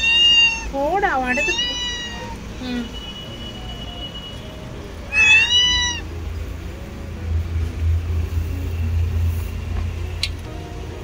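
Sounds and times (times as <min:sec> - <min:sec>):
cat meowing: 0:00.0 - 0:02.5, 0:05.1 - 0:06.1
low rumble: 0:06.2 - 0:10.9.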